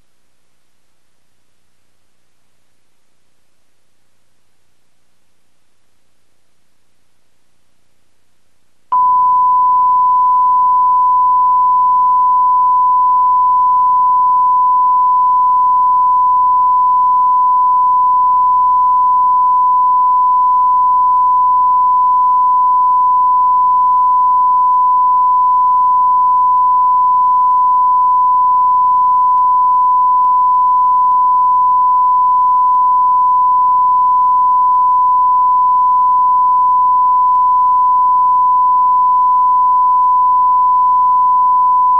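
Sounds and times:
faint background hum: 0.0s - 41.9s
electronic test tone: 8.9s - 41.9s.

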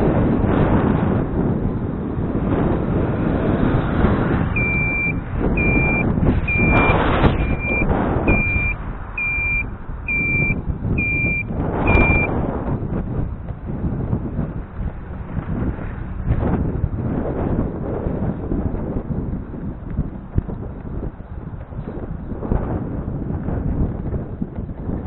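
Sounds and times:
rumble of riding over rough ground: 0.0s - 25.0s
wind buffeting the microphone: 0.0s - 25.0s
electronic beeper short beeps: 4.6s - 12.3s.

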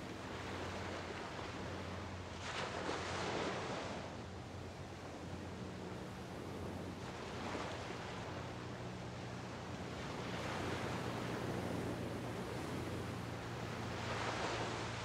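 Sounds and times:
waves washing onto beach: 5.3s - 15.0s.

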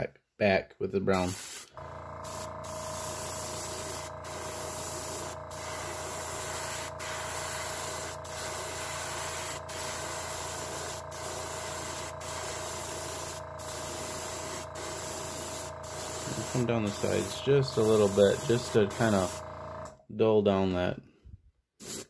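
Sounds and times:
airbrush spraying hiss: 1.2s - 19.4s, 21.8s - 22.0s
steady low hum: 1.8s - 12.5s.

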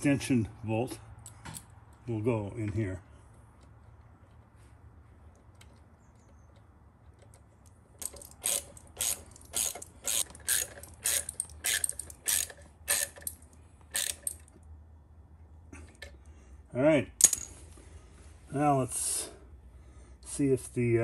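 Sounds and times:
socket ratchet clicking: 8.0s - 14.5s.

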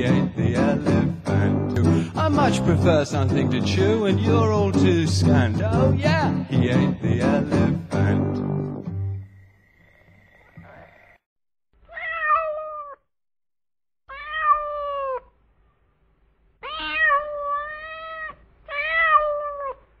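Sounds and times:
cat meowing: 11.8s - 13.1s, 14.1s - 15.4s, 16.6s - 19.9s.

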